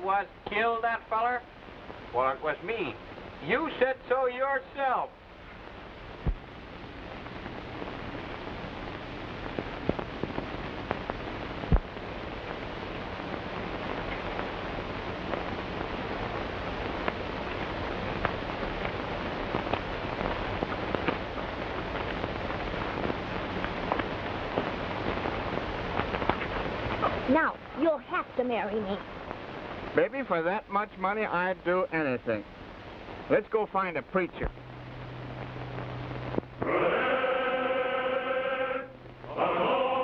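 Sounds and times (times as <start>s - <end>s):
faint low hum: 0.0s - 40.0s
film soundtrack hiss and crackle: 0.0s - 40.0s
scattered pops: 5.2s - 36.8s.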